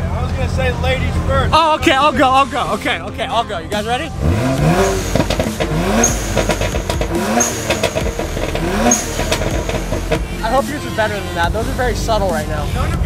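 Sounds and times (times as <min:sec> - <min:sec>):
car engine revving: 0:00.0 - 0:13.0
crackling exhaust pops: 0:04.6 - 0:10.7.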